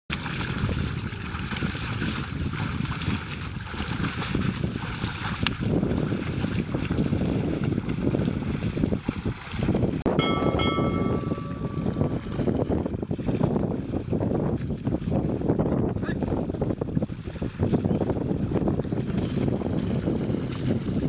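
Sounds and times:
oxen splashing through mud: 0.1 - 10.0
wind buffeting microphone: 0.1 - 21.0.

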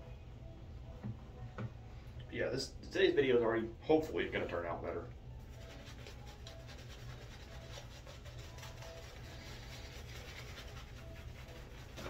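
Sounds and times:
shaving brush wet brushing: 5.4 - 12.0.

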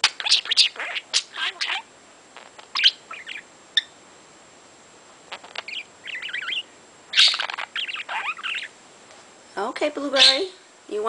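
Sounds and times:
budgerigar chattering: 0.1 - 3.9, 5.3 - 8.8, 10.2 - 10.4.

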